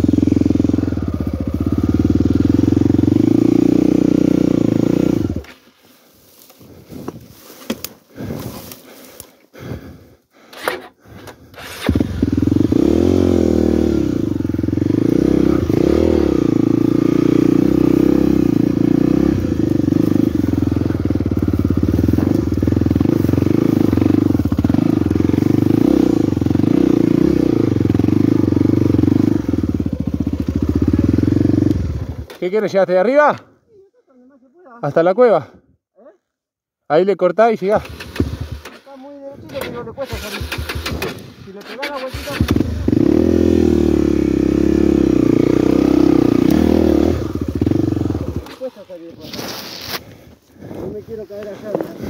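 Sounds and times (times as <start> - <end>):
dirt bike engine revving: 0.0 - 5.5, 11.5 - 32.4, 37.7 - 38.9, 39.5 - 49.5.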